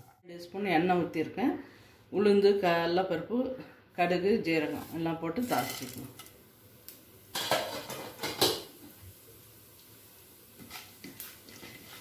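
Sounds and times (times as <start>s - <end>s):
hot oil hissing: 5.3s - 12.0s.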